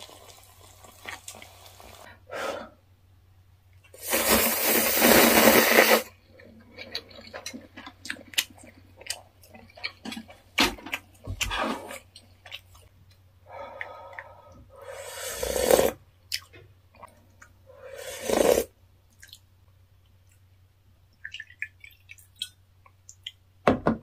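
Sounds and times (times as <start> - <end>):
person slurping noodle broth: 4.0 - 6.2, 14.8 - 16.0, 17.7 - 18.8.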